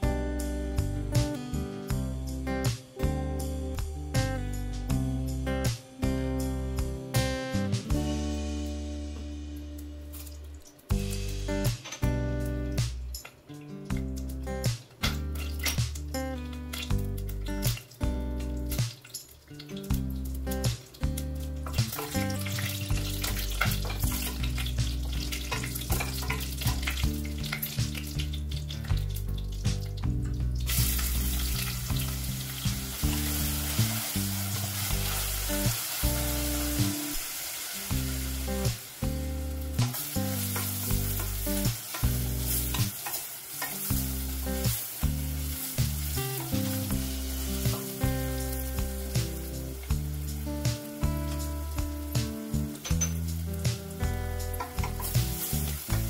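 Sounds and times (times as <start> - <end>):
background music with low notes: 0.0 - 56.0
onions sizzling in pan: 0.0 - 56.0
spices crackling in hot oil: 7.2 - 56.0.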